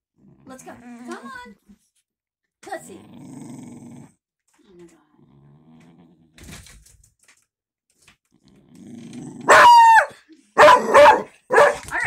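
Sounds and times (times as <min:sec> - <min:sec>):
dog growling: 0:00.2 - 0:01.1, 0:02.9 - 0:04.2, 0:05.0 - 0:06.4, 0:08.3 - 0:10.0
dog barking: 0:09.5 - 0:12.0.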